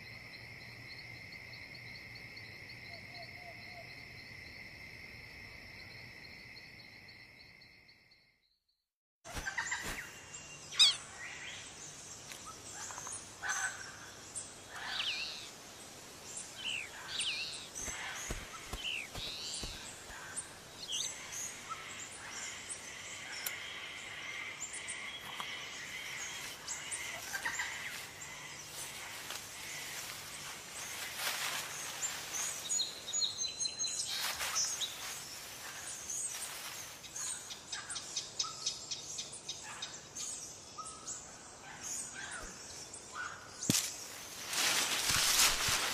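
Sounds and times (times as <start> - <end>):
birds chirping: 9.3 - 45.9.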